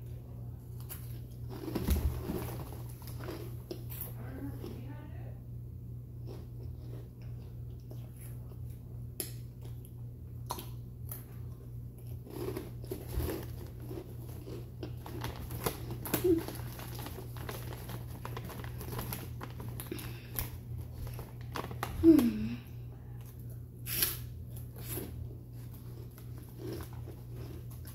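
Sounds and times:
person chewing crunchy chips: 0:00.8 - 0:04.1, 0:06.2 - 0:27.9.

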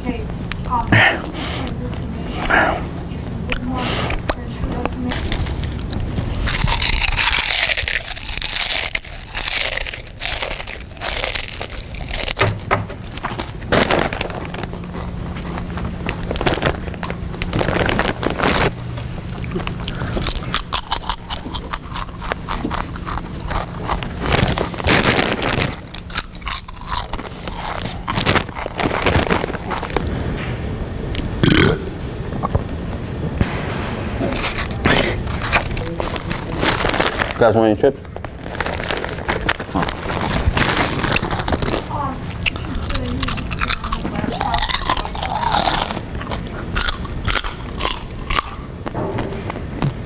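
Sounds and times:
crunching potato chips: 0:03.5 - 0:30.1, 0:34.3 - 0:49.0
chip bag crinkling: 0:04.3 - 0:30.1, 0:34.3 - 0:48.7.

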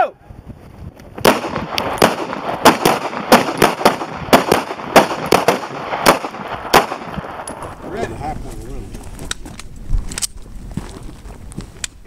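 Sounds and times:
pistol shots: 0:01.2 - 0:07.6.

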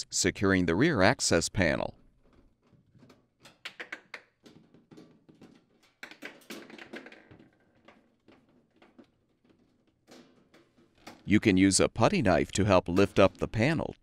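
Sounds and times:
scraping: 0:04.4 - 0:11.4.

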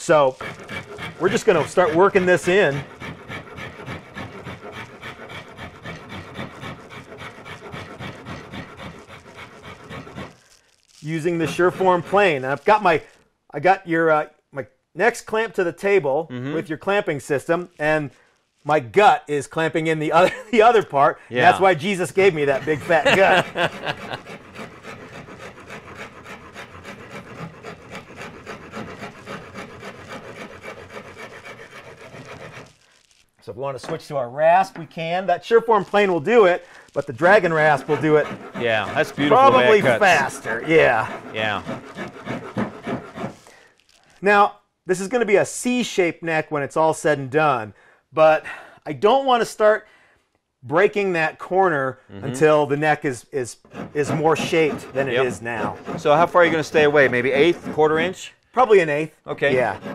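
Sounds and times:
plane rasping wood: 0:00.0 - 0:13.0, 0:21.4 - 0:32.8, 0:33.8 - 0:43.6, 0:53.6 - 0:59.9.

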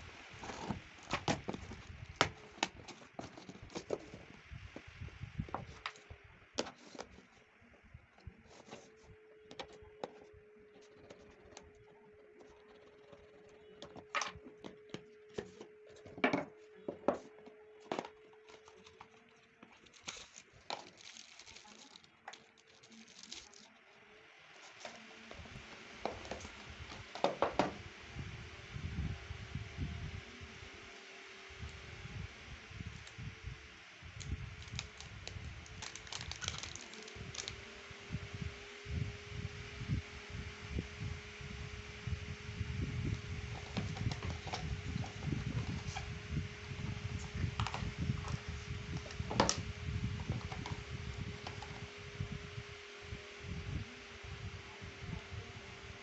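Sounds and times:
faint steady hum: 0:00.0 - 0:56.0
paper and plastic wrap rustling: 0:00.4 - 0:04.3, 0:05.5 - 0:07.4, 0:08.4 - 0:24.0, 0:34.6 - 0:37.6
cardboard and tape tearing: 0:18.0 - 0:23.7, 0:35.7 - 0:37.6.

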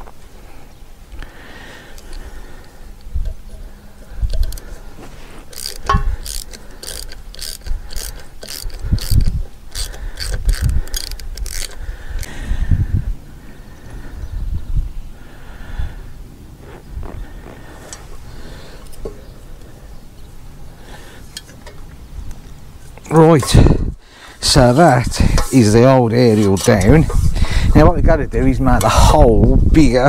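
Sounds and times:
wind rumbling on microphone: 0:02.9 - 0:20.7, 0:21.9 - 0:25.8, 0:26.6 - 0:30.0
ratchet spanner clicking: 0:03.0 - 0:12.3.

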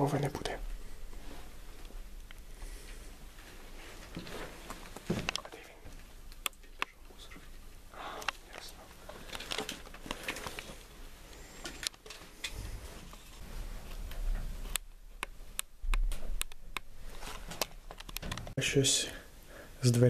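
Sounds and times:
rustling: 0:00.4 - 0:14.8, 0:16.0 - 0:18.6
sharp clicks and knocks: 0:13.9 - 0:18.6.

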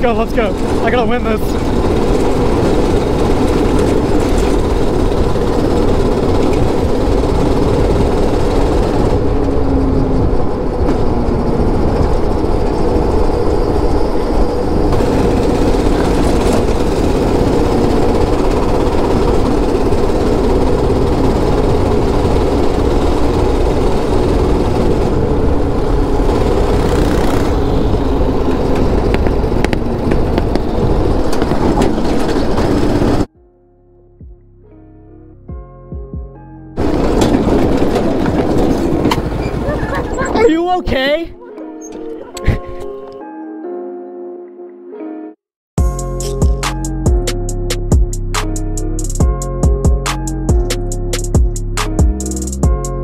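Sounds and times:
go-kart engine running: 0:00.0 - 0:33.3, 0:36.8 - 0:42.8
wind noise on microphone: 0:00.0 - 0:33.3, 0:35.5 - 0:40.5.

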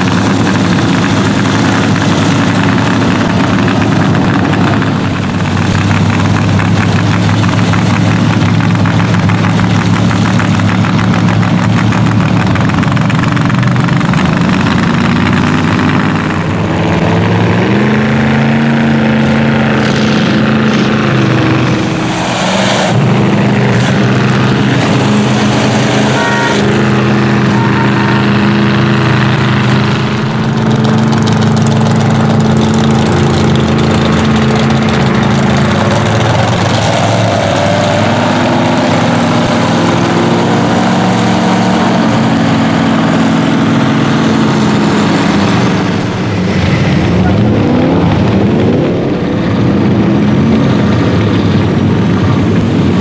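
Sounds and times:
trucks driving past: 0:00.0 - 0:53.0.

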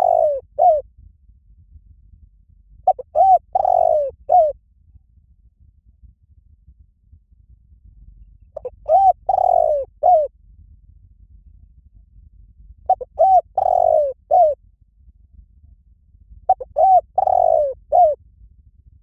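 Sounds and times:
dove cooing: 0:00.0 - 0:00.8, 0:02.9 - 0:04.5, 0:08.6 - 0:10.3, 0:12.9 - 0:14.6, 0:16.5 - 0:18.2.

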